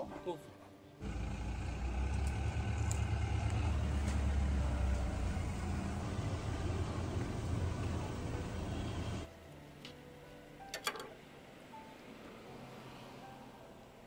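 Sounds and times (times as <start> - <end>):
engine idling rumble: 1.0 - 9.3.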